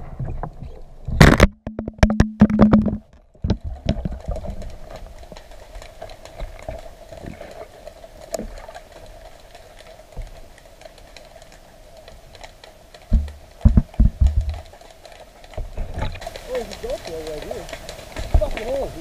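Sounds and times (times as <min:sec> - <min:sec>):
camera housing knocking against rock: 0:01.2 - 0:03.0, 0:13.1 - 0:14.6
light ticks and clicks: 0:03.1 - 0:19.0.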